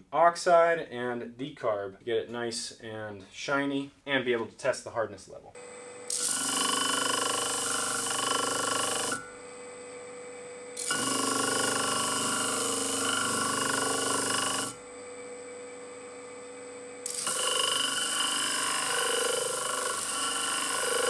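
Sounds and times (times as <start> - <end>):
sander motor humming: 5.6 - 10.0, 10.7 - 21.0
knife grinding on disc sander: 6.0 - 9.6, 10.8 - 15.6, 16.9 - 21.0.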